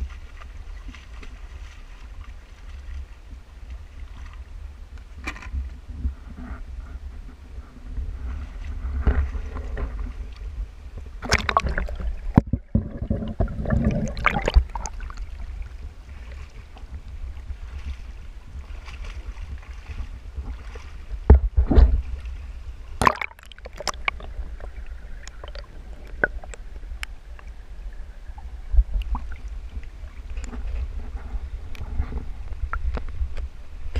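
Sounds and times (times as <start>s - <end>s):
wind buffeting microphone: 3.8s - 23.0s
rocky stream running: 8.7s - 31.0s.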